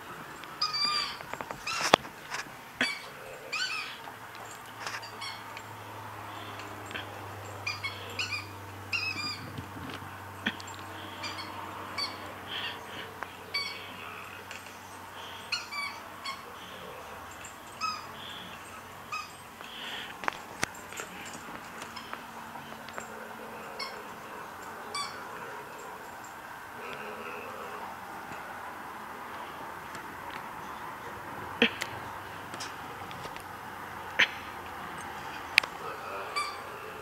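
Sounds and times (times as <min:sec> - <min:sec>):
squeaky dog toy squeaking: 0:00.6 - 0:02.0, 0:02.8 - 0:04.0, 0:04.8 - 0:05.5, 0:07.6 - 0:09.5, 0:11.2 - 0:12.8, 0:13.5 - 0:13.8, 0:15.5 - 0:16.5, 0:17.7 - 0:19.4, 0:23.0 - 0:24.1, 0:24.8 - 0:25.2, 0:36.3 - 0:36.7.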